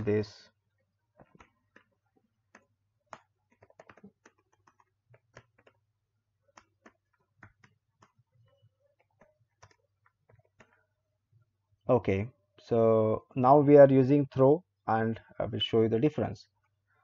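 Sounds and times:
keyboard keys clicking: 0:03.5 - 0:05.8.

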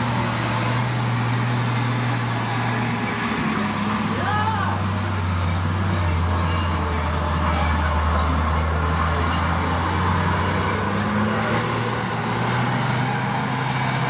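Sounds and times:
truck engine droning: 0:00.0 - 0:14.0.

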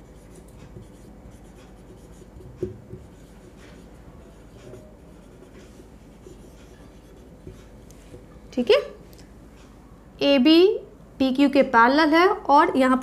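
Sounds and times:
marker pen writing on whiteboard: 0:00.0 - 0:08.4.

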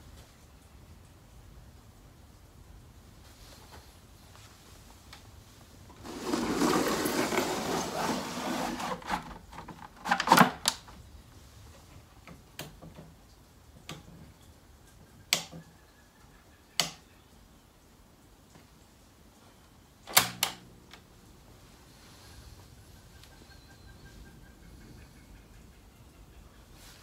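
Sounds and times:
wooden sliding door scraping: 0:05.9 - 0:10.5.

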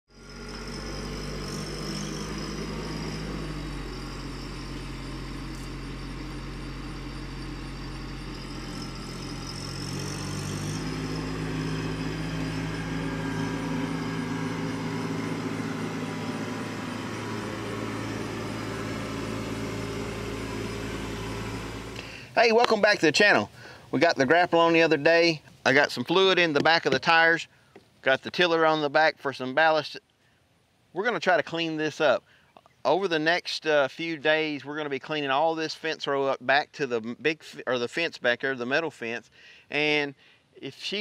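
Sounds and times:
tractor engine running: 0:00.1 - 0:25.0.

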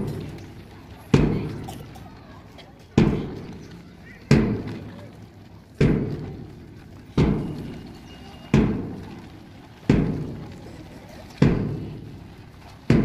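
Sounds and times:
deep drum beats: 0:00.0 - 0:00.5, 0:01.1 - 0:01.8, 0:03.0 - 0:03.7, 0:04.3 - 0:04.9, 0:05.8 - 0:09.2, 0:09.8 - 0:10.6, 0:11.4 - 0:13.0.

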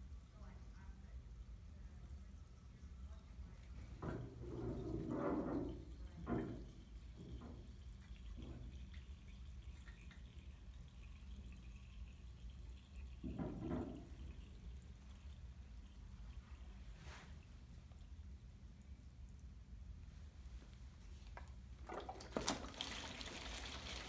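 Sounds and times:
faint water trickle: 0:00.0 - 0:24.0
water gurgling between bottles: 0:03.9 - 0:18.4, 0:21.8 - 0:24.0.

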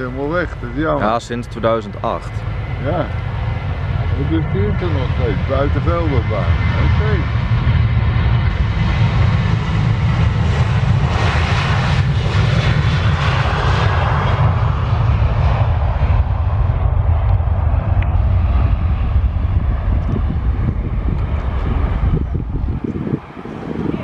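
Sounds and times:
jet engines at takeoff thrust: 0:00.0 - 0:24.0.

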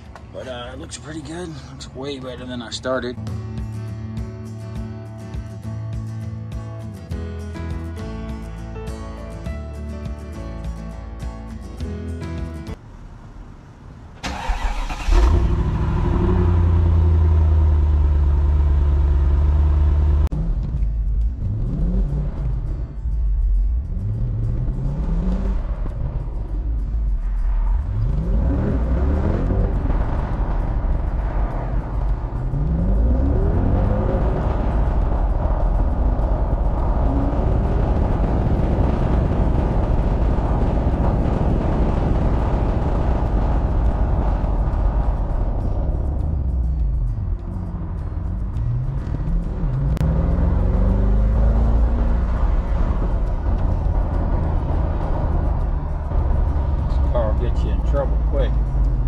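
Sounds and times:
road noise: 0:00.0 - 0:59.0
car driving off: 0:12.7 - 0:59.0
car engine idling: 0:12.8 - 0:59.0
engine starter cranking: 0:14.2 - 0:15.6.

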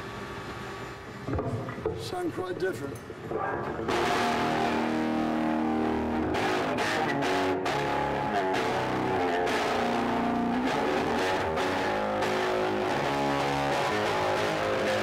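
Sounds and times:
overdriven electric bass strummed: 0:03.3 - 0:15.0.

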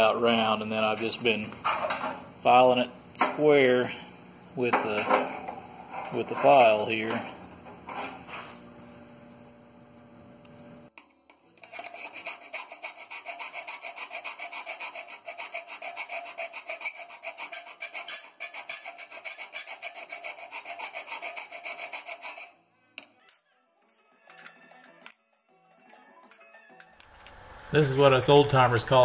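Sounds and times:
file rasping on steel: 0:04.8 - 0:08.3, 0:11.6 - 0:22.5, 0:27.5 - 0:29.0.

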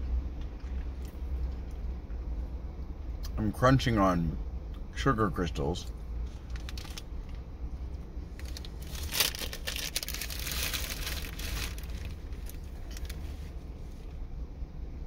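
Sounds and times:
low hum: 0:00.0 - 0:15.0
plastic wrapper crinkling: 0:06.4 - 0:07.4, 0:08.4 - 0:13.5.

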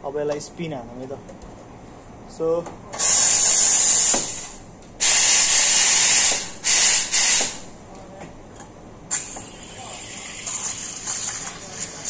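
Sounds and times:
steam wand hissing: 0:03.0 - 0:07.6, 0:09.1 - 0:11.6.

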